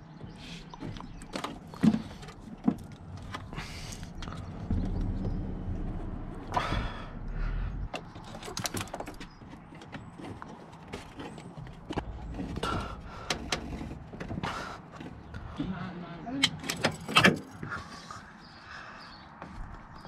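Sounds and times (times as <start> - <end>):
low rumble: 2.9 - 9.4
hoses rubbing and scraping: 7.9 - 15.6.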